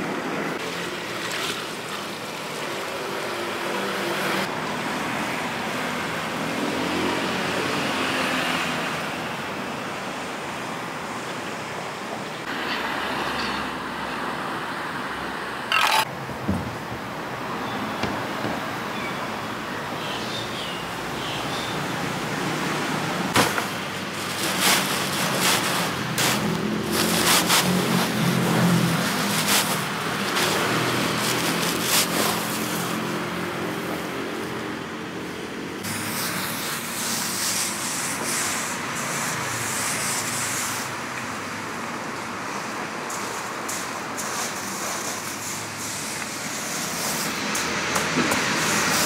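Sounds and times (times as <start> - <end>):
road traffic passing: 0.0 - 49.0.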